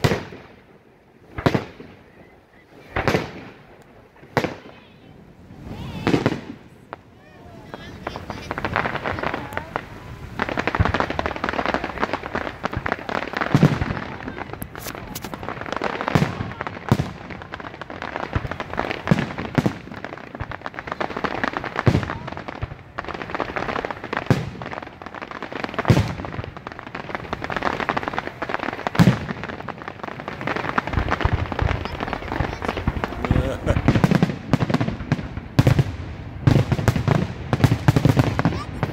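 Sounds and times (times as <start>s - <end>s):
dense crackling: 26.6s - 38.9s
firework shells bursting: 27.2s - 35.9s.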